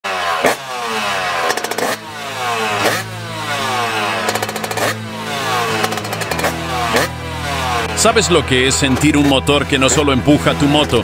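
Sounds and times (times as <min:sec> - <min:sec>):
motocross bike engine revving: 0:00.0 - 0:11.0.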